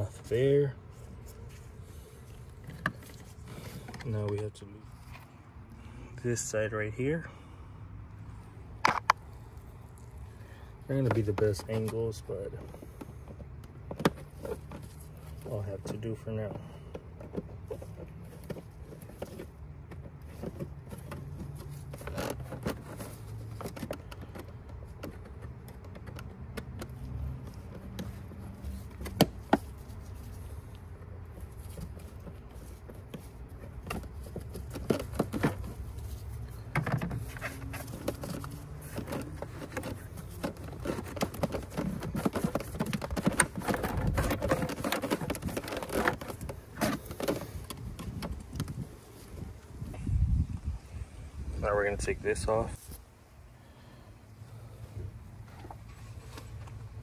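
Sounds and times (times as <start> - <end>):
plastic parts clicking and scraping: 1.0 - 5.3, 8.8 - 49.8.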